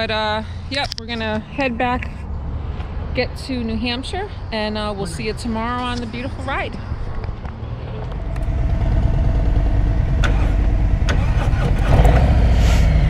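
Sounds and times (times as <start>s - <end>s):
motorcycle engine rumbling: 3.3s - 13.0s.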